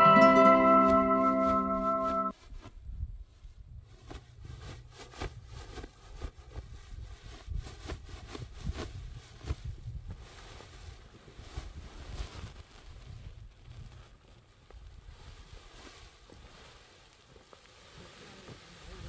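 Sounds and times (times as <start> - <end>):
wind buffeting microphone: 6.6 - 13.9.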